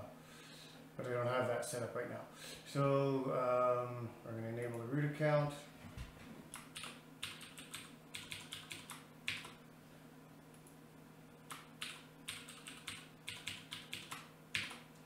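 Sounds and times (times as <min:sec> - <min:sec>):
computer keyboard typing: 0:06.5 - 0:09.6, 0:11.5 - 0:14.8.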